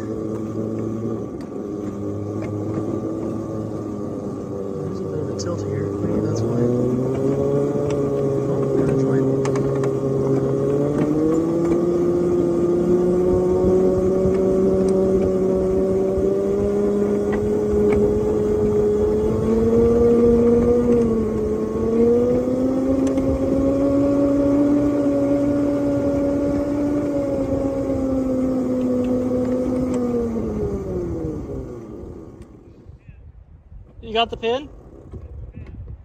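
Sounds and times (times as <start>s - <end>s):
miniature locomotive drive whine: 0.0s - 33.1s
wheel clicks on rails: 5.7s - 32.6s.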